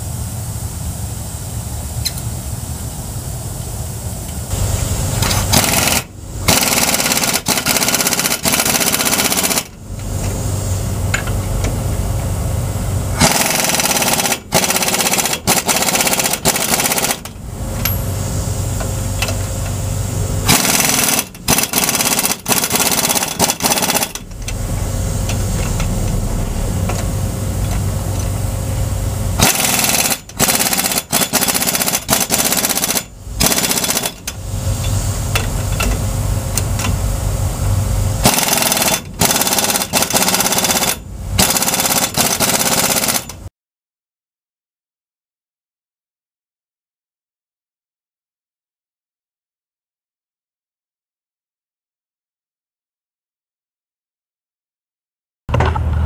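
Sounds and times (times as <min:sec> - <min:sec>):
impact wrench hammering: 0:05.2 - 0:09.8, 0:13.2 - 0:18.0, 0:20.4 - 0:24.6, 0:29.4 - 0:34.4, 0:38.2 - 0:43.4.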